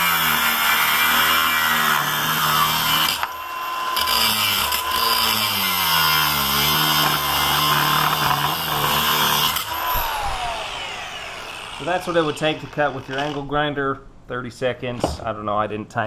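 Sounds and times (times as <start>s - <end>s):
angle grinder cutting metal: 0.0s - 13.5s
motor winding down whine: 9.4s - 13.4s.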